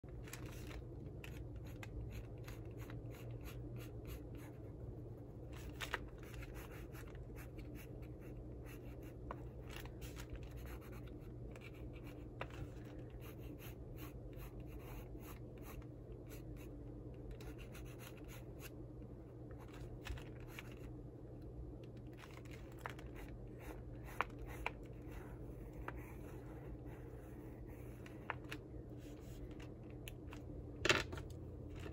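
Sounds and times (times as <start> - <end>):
steady low hum: 0.0 - 31.9
pencil scratching on paper: 1.6 - 4.7, 6.3 - 9.3, 10.5 - 12.4, 13.1 - 16.7, 17.4 - 18.7, 23.2 - 28.3.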